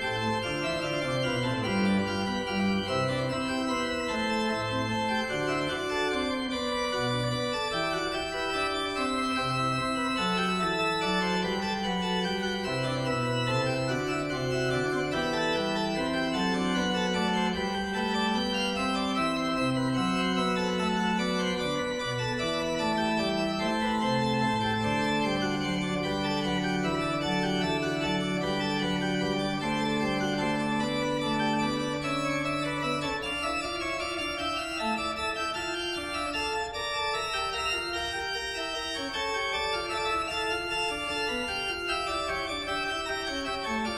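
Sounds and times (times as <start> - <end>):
slow organ music: 0.0 - 43.9.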